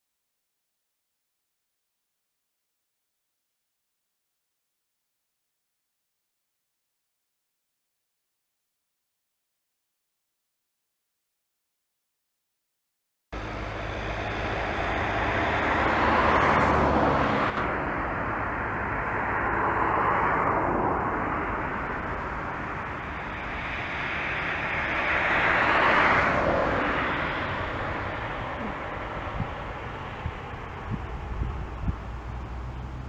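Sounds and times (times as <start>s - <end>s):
propeller aircraft engine drone: 13.4s - 33.0s.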